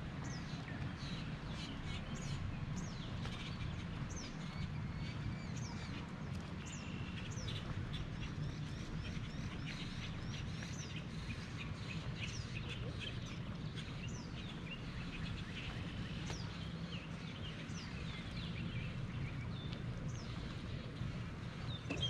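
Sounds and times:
songbirds chirping: 0:00.0 - 0:22.0.

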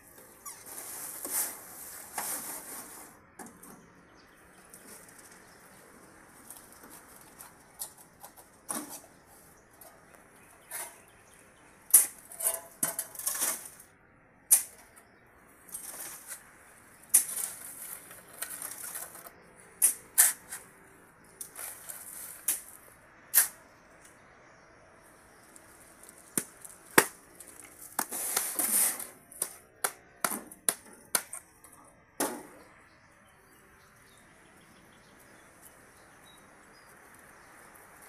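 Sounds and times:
shovel scraping concrete mix: 0:00.2 - 0:03.2, 0:11.9 - 0:13.9, 0:15.7 - 0:16.4, 0:17.0 - 0:20.8, 0:21.4 - 0:23.6, 0:25.6 - 0:31.5.

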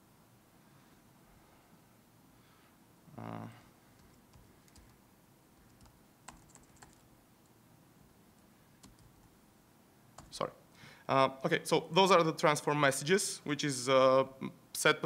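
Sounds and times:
man humming: 0:03.1 - 0:03.7
keyboard typing clicks: 0:04.0 - 0:05.0, 0:08.8 - 0:09.2.

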